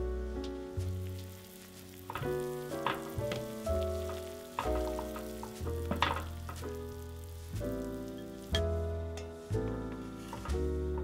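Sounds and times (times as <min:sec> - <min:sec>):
gentle instrumental music: 0:00.0 - 0:11.0
hot water bubbling and sloshing: 0:00.8 - 0:08.6.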